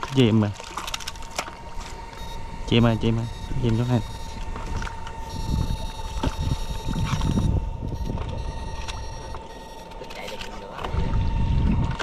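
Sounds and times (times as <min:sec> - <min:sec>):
knocks and splashes in water: 0:00.0 - 0:01.9, 0:10.8 - 0:12.0
high-pitched machine whine: 0:00.0 - 0:12.0
wind rumbling on microphone: 0:01.6 - 0:09.5, 0:10.8 - 0:12.0.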